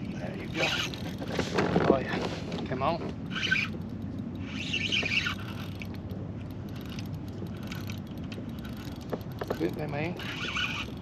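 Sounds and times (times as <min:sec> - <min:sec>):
reel cranking: 0:00.1 - 0:11.0
fishing reel drag squealing: 0:00.4 - 0:01.2, 0:03.3 - 0:05.9, 0:06.7 - 0:11.0.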